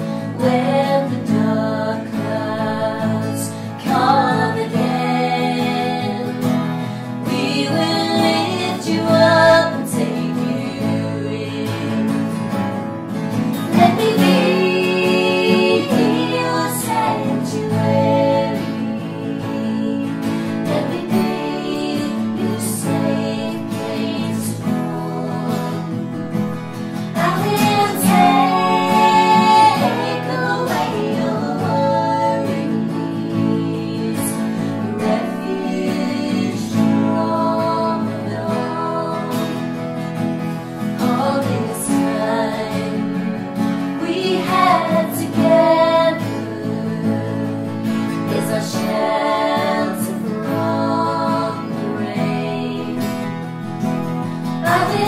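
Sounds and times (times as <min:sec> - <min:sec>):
women singing together: 0:00.0 - 0:12.7, 0:13.5 - 0:39.8, 0:40.8 - 0:55.0
acoustic guitars strummed: 0:00.0 - 0:55.0.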